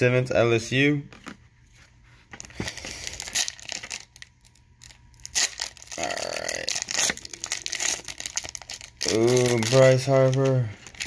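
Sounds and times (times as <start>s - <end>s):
foil crinkling: 2.4s - 11.0s
foil tearing: 2.7s - 11.0s.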